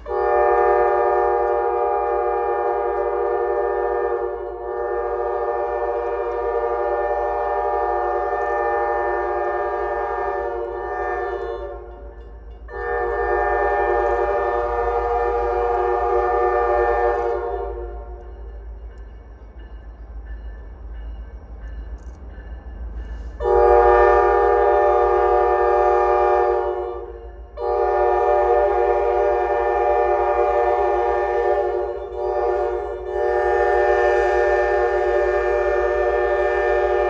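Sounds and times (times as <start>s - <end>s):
locomotive air horn blasts: 0.0s - 12.1s, 12.7s - 18.3s, 23.4s - 37.0s.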